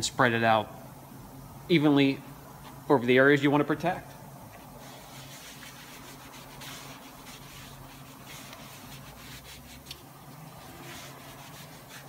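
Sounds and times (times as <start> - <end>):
low steady hum: 0.0 - 12.0
foam pad rubbing plastic: 4.8 - 12.0.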